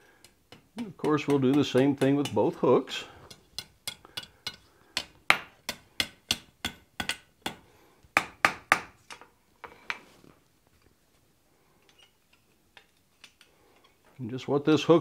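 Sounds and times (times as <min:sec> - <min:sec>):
hammer striking steel on anvil: 0:03.3 - 0:07.6.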